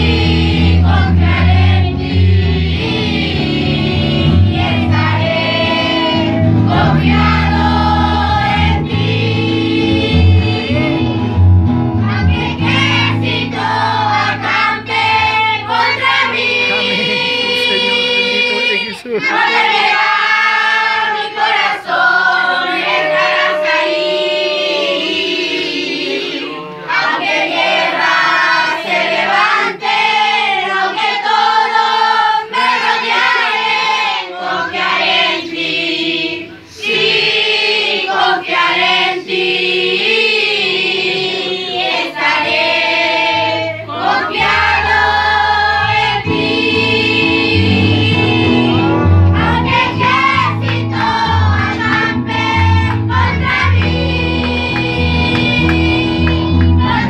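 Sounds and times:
adult voices singing along: 0.0s - 11.2s, 12.0s - 57.0s
children's choir singing: 0.0s - 11.2s, 12.0s - 57.0s
low instrumental accompaniment: 0.0s - 19.5s, 42.2s - 57.0s.

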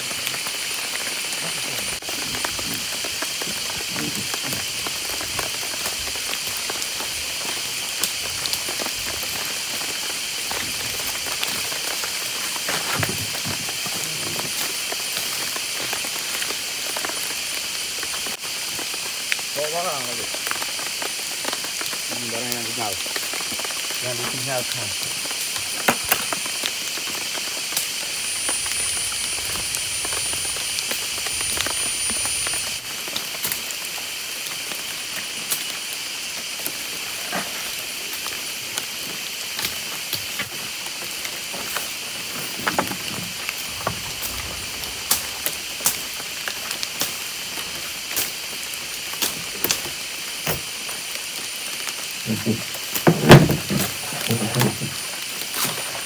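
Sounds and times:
jungle background hiss: 0.0s - 56.0s.

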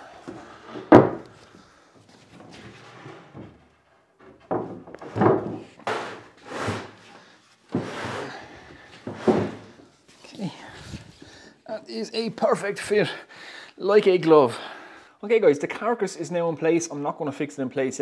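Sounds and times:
wooden knock: 0.8s - 1.3s, 4.2s - 6.0s
wooden drawer thuds and scrapes: 9.0s - 9.7s.

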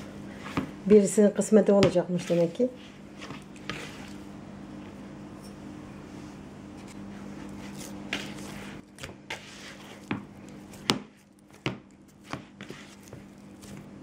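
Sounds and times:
dough thumping and slapping: 1.6s - 2.5s, 8.1s - 14.0s.

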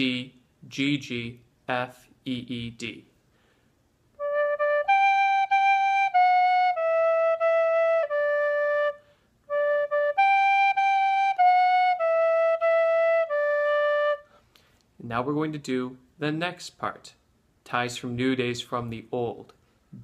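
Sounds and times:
tin whistle melody: 4.2s - 14.4s.

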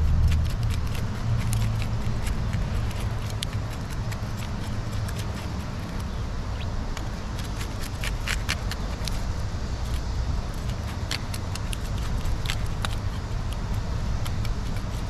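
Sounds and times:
low rumble: 0.0s - 6.5s
clicks and scrapes on wet rock: 0.1s - 9.2s.

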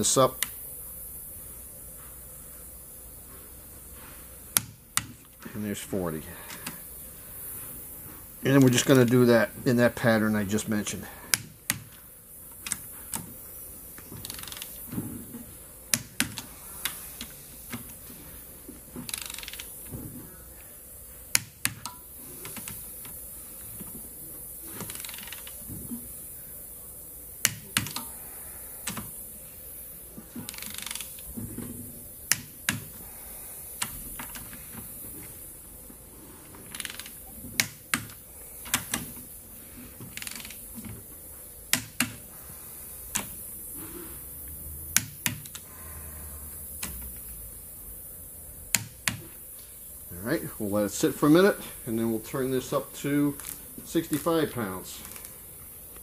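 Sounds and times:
torque wrench clicks: 14.2s - 14.8s, 19.1s - 19.8s, 30.5s - 31.2s, 36.7s - 39.1s, 40.1s - 40.6s
wrench ratcheting: 14.2s - 14.8s, 19.1s - 19.8s, 24.8s - 25.6s, 30.5s - 31.2s, 36.7s - 38.1s, 40.1s - 40.6s.

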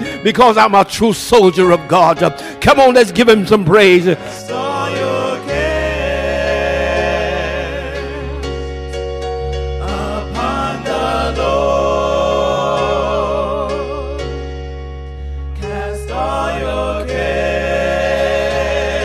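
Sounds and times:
electronic keyboard: 0.0s - 19.0s
voices singing gospel: 3.8s - 14.7s, 15.5s - 19.0s.

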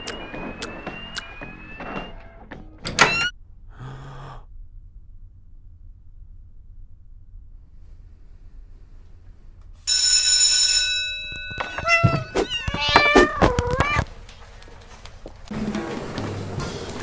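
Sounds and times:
bright bell ring: 9.8s - 12.7s
cat meowing: 11.7s - 14.1s.

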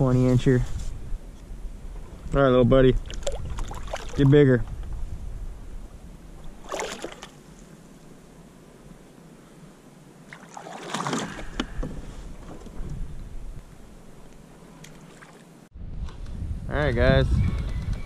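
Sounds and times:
rustle: 0.0s - 16.5s
water splashing and sloshing: 3.0s - 4.8s, 6.4s - 7.8s, 10.2s - 13.0s, 14.2s - 15.6s.

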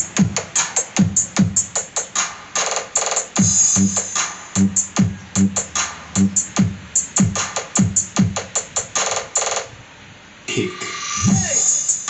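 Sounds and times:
bright hi-hat hits: 0.0s - 9.7s, 10.5s - 12.0s
electronic dance music: 0.0s - 9.7s, 10.5s - 12.0s
deep kick drums: 11.2s - 11.6s.

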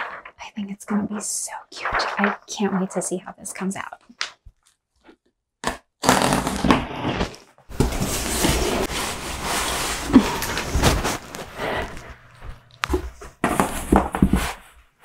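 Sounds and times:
rustling crinkling handling noise: 7.8s - 15.0s.

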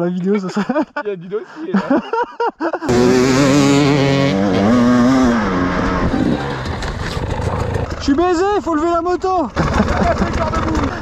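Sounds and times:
dirt bike engine revving: 2.9s - 8.2s.

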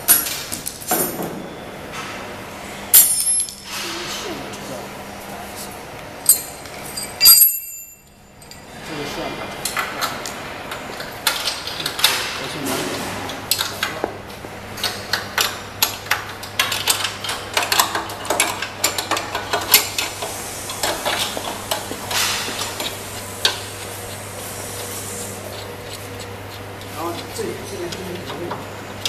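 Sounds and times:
steady low hum: 0.0s - 29.0s
metallic clinks and knocks: 6.3s - 8.6s.

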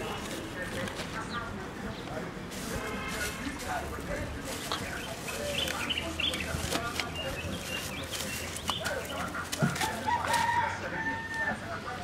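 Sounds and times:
distant voices: 0.0s - 12.0s
rooster crowing: 9.8s - 11.6s.

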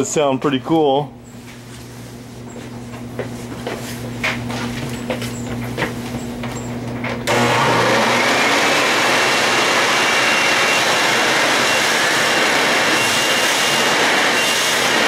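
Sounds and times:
leaf blower motor whining: 7.2s - 15.0s.

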